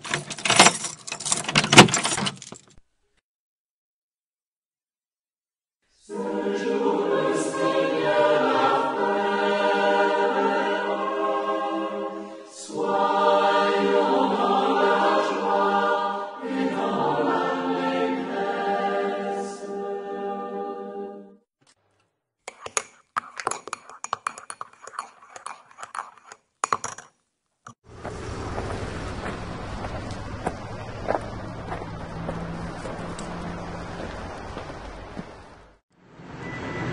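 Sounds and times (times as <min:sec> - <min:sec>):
choir chanting unaccompanied: 0:06.0 - 0:21.4.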